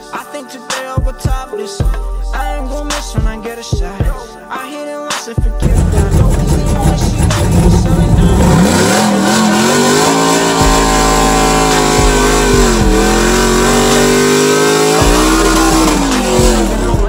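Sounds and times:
pickup engine revving high: 5.6 - 17.0.

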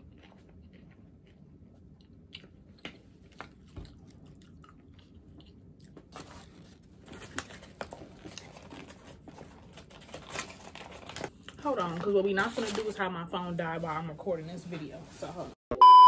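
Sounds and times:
crunchy chewing: 0.0 - 10.5
paper bag rustling: 6.2 - 11.3.

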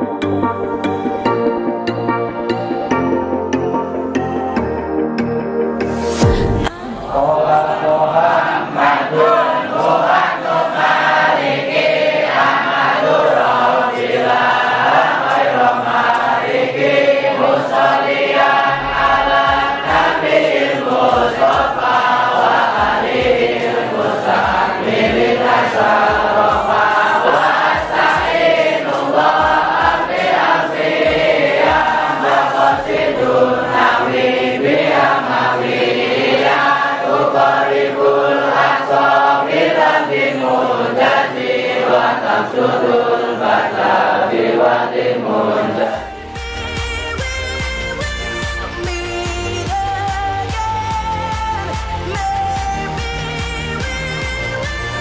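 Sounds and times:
crowd chanting in unison: 6.2 - 46.4.

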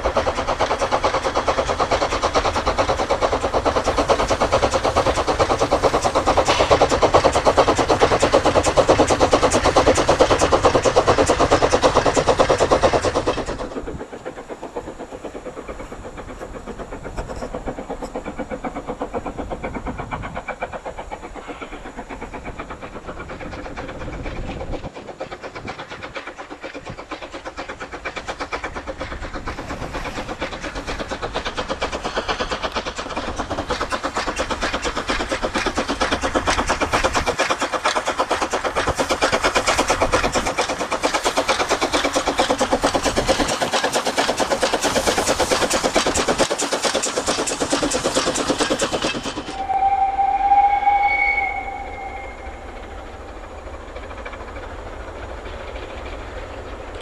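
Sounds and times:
steam locomotive exhaust chuffing: 0.0 - 57.0.

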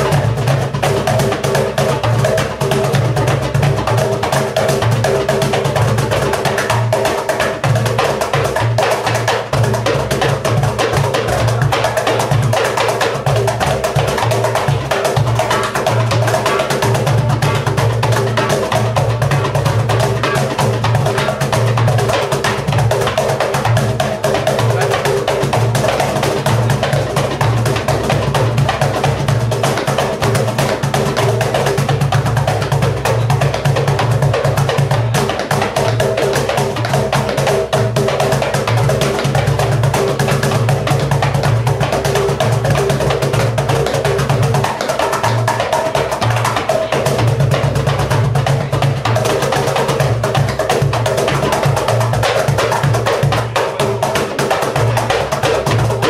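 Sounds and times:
clacking wooden percussion: 0.0 - 56.0
goblet drum beating: 0.0 - 56.0.

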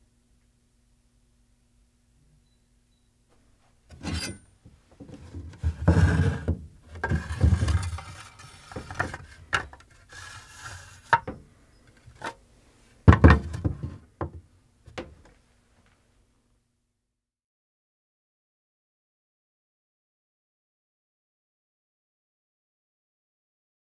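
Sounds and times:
blade scraping in bamboo scabbard: 3.9 - 4.4, 7.1 - 11.1.

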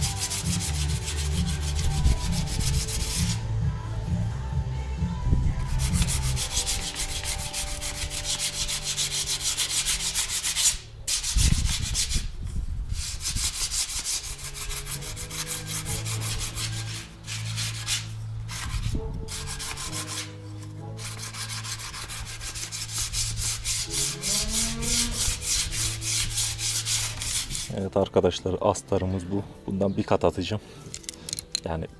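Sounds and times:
sandpaper rubbing plastic: 0.0 - 3.4, 5.7 - 20.4, 21.0 - 27.7.

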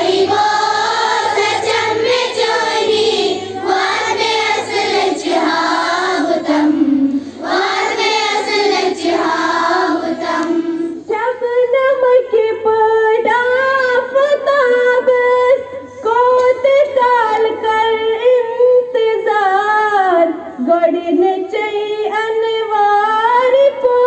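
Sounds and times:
children singing together: 0.0 - 11.1.

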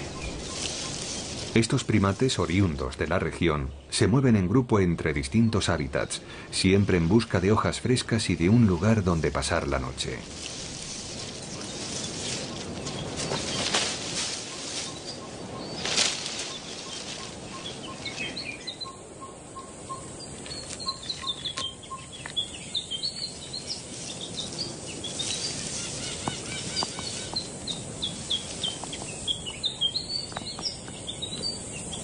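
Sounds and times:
birds chirping and trilling: 0.0 - 32.0
low piping bird notes: 10.7 - 32.0.

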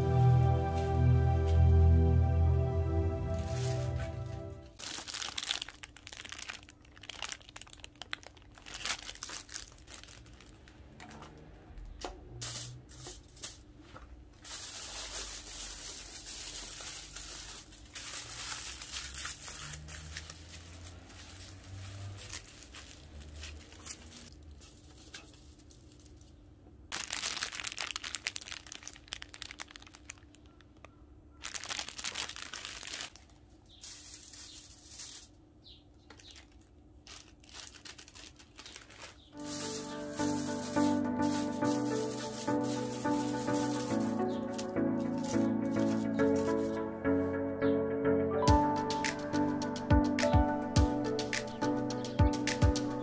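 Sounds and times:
plastic and foil crinkling: 3.3 - 11.4, 12.4 - 46.9.

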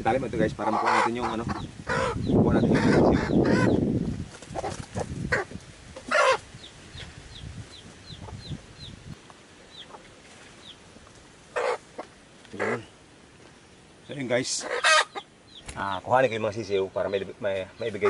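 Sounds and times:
chicks peeping: 0.1 - 12.9, 14.0 - 18.0
hen clucking: 0.4 - 3.9, 4.5 - 9.0, 9.6 - 13.0, 14.1 - 16.1.

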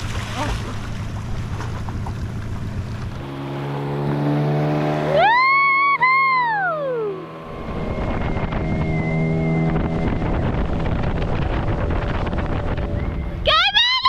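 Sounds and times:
outboard motor running: 0.0 - 13.4
person cheering woo: 5.1 - 7.2
wind buffeting microphone: 7.5 - 13.8.

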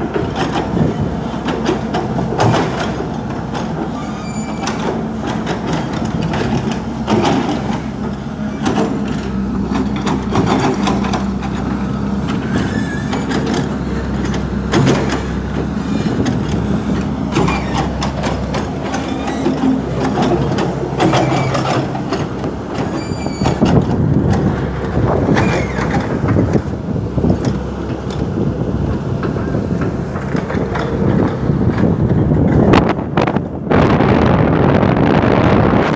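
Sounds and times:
excavator diesel engine running: 0.0 - 35.9
metallic clanks and knocks: 4.6 - 11.7, 12.6 - 28.3.

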